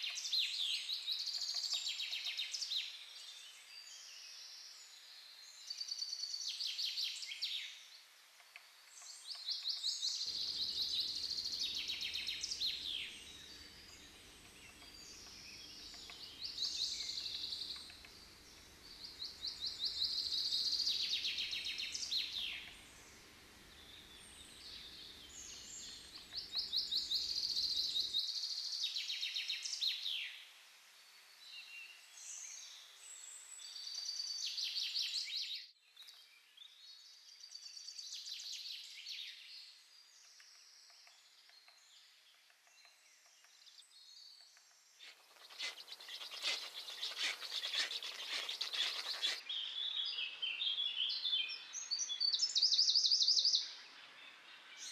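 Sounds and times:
songbirds trilling: 8.8s - 30.3s, 40.3s - 54.9s.

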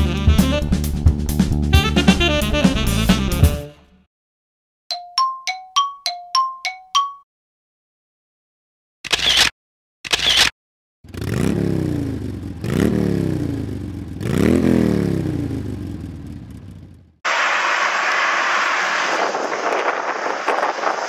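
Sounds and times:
engine revving: 11.1s - 17.0s
wind noise on microphone: 18.3s - 21.0s.

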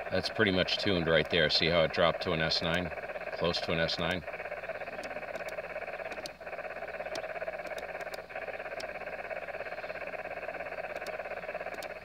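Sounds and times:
radio noise hiss: 0.0s - 12.0s
faint ticks: 2.6s - 12.0s.

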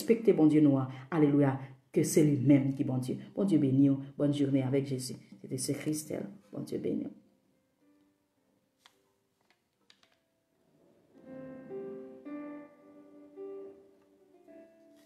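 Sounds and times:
soft keyboard background music: 11.1s - 15.0s.

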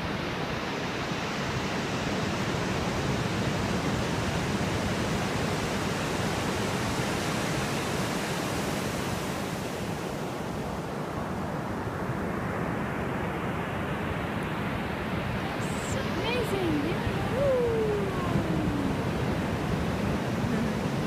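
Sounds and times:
surf washing onto beach: 14.7s - 21.0s.

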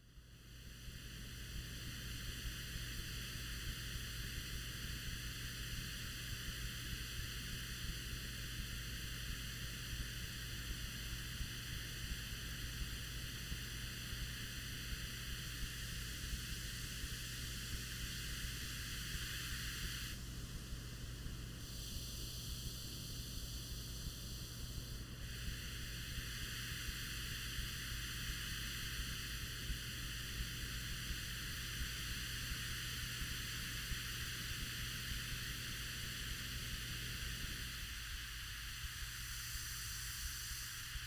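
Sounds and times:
static-like hiss: 0.0s - 41.0s.

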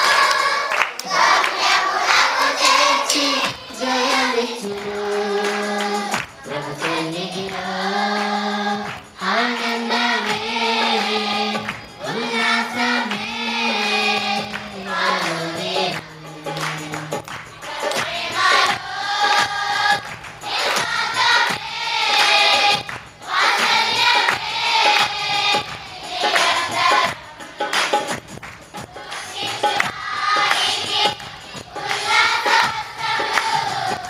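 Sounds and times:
girls singing in unison: 0.0s - 28.1s, 28.8s - 34.0s.

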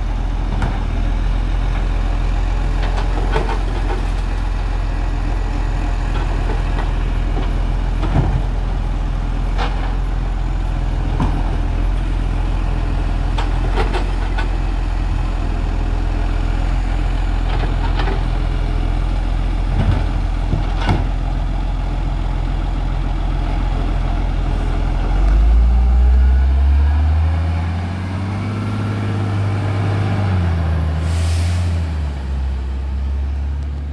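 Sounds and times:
garbage truck engine: 0.0s - 33.9s
short air hiss: 31.0s - 31.8s.

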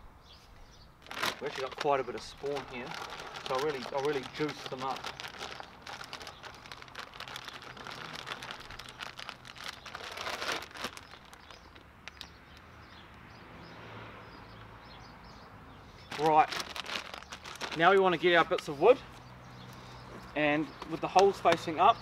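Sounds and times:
plastic bag crinkling: 1.0s - 12.3s, 16.1s - 18.7s.

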